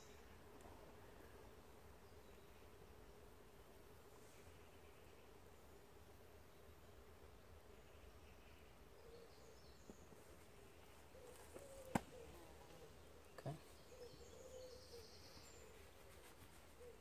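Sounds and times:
faint bird chirps: 6.5 - 17.0.

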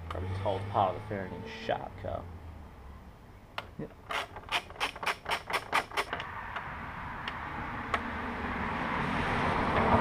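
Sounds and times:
ratchet wrench clicking: 4.1 - 6.1.

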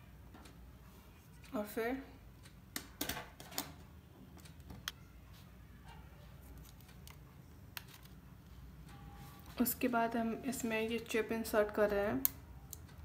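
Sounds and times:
plastic camera clicks: 7.8 - 8.2.

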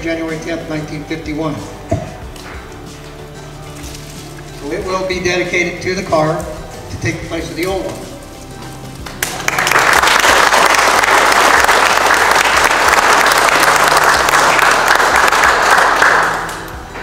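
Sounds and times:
audience applauding: 9.0 - 16.8.

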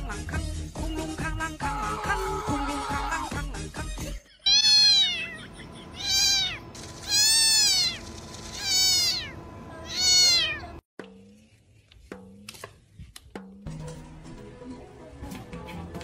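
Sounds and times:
cat meowing: 4.4 - 10.8.

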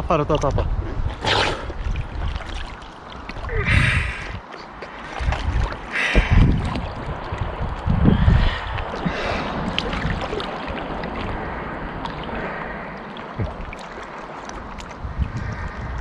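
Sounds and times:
lake water sloshing and splashing: 0.7 - 16.0
water drips: 1.7 - 16.0
low rumbling: 3.2 - 16.0.

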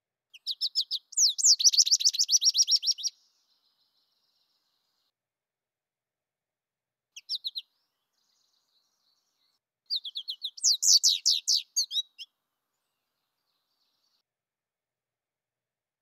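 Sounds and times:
high bird chirps: 0.3 - 3.8, 7.2 - 9.2, 9.9 - 12.3
bird twittering: 0.4 - 3.1, 7.2 - 7.6, 9.9 - 12.3.

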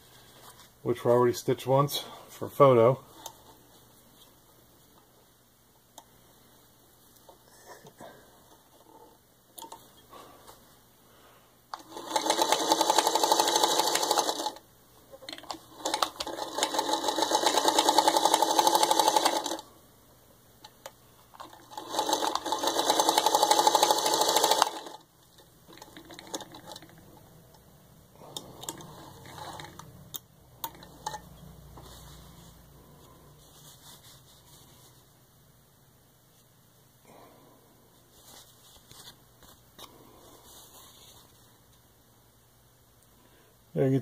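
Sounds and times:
sewing machine stitching: 11.8 - 14.6, 15.3 - 19.6, 21.4 - 25.0, 25.7 - 27.0, 28.3 - 29.9
fabric rustling: 31.8 - 35.2, 38.0 - 41.6.

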